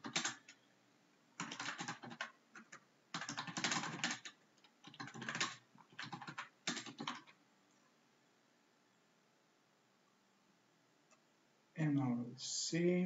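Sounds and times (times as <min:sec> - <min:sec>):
typing on computer keyboard: 0:00.0 - 0:00.6, 0:01.4 - 0:07.4.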